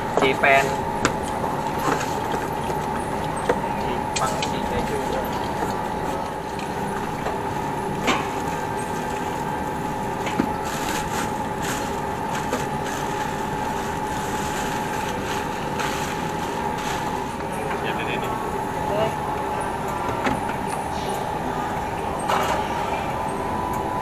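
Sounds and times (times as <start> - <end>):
steady mechanical hum: 0.0 - 24.0
plastic wrapping crackling: 8.4 - 17.7.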